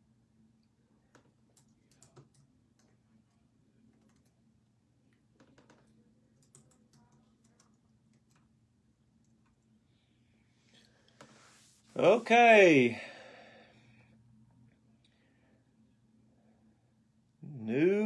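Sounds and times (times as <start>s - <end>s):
steady low hum: 0.0s - 18.0s
keyboard typing clicks: 3.9s - 4.4s, 5.4s - 8.5s.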